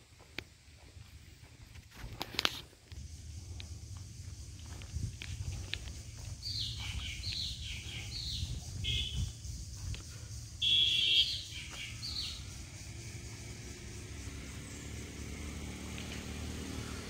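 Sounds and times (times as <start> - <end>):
harsh buzzing bird call: 10.6 - 12.6.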